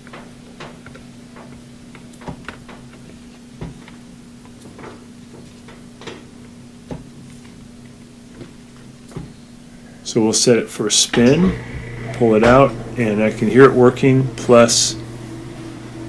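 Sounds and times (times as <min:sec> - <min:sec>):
steady low hum: 0:05.2 - 0:16.0.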